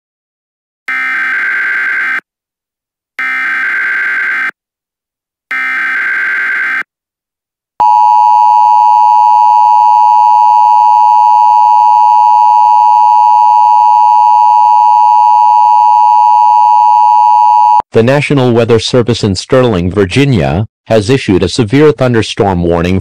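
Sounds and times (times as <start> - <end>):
loud steady attention tone: 7.8 - 17.8.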